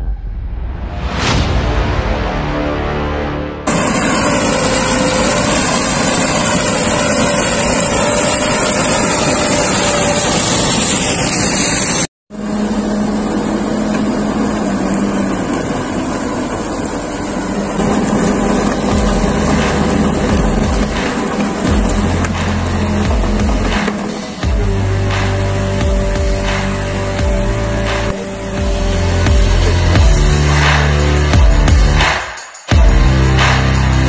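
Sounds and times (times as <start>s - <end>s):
diesel engine under load: 3.7s - 32.0s
rumble of harvester gear: 12.4s - 30.2s.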